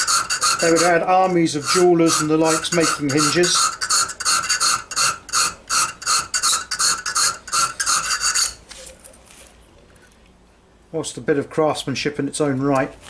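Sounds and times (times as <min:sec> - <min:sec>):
hand file rasping on steel: 0:00.0 - 0:08.6.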